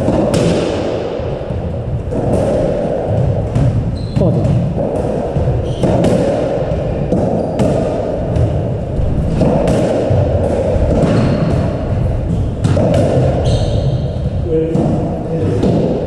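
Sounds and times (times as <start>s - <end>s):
squash ball knocking off rackets: 2.1s - 14.0s.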